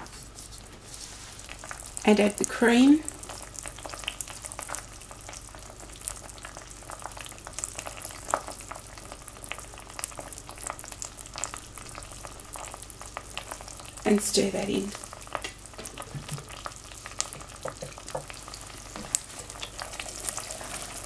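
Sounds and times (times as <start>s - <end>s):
sugar syrup sizzling and crackling: 0.0s - 21.0s.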